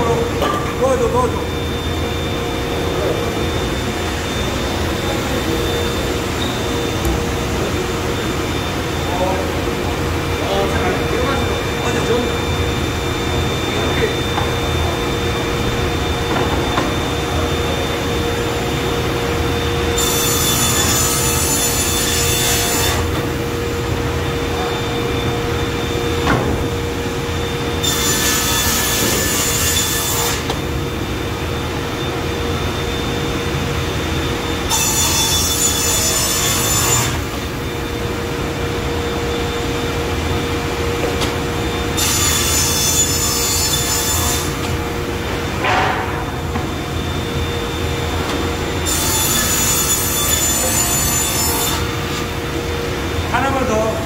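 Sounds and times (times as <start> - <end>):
saw blade cutting plywood: 20.0 - 23.2, 27.8 - 30.6.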